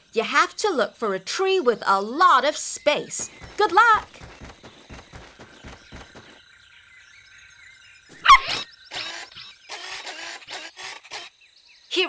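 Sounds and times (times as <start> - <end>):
bird chirps: 1.9 - 12.0
cartoon puppy barking: 8.2 - 9.2.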